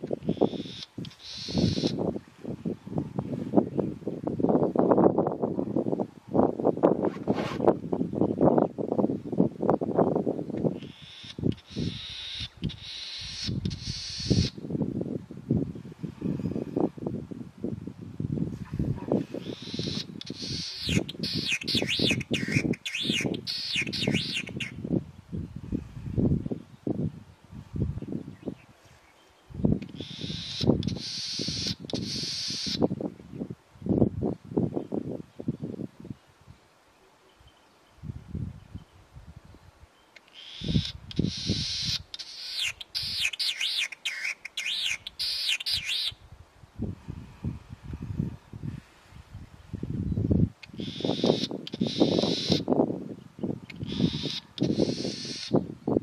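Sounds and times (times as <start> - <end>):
snipe calling: 0.2 - 2.0, 10.8 - 14.6, 19.4 - 24.8, 29.9 - 32.9, 40.2 - 46.2, 50.6 - 52.7, 53.7 - 55.6.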